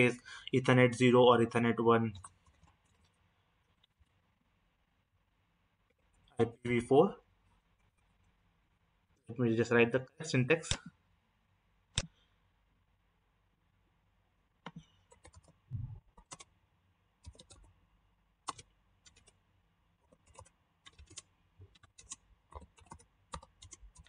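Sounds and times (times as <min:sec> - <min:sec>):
soft low thump: 0:15.7 - 0:16.0.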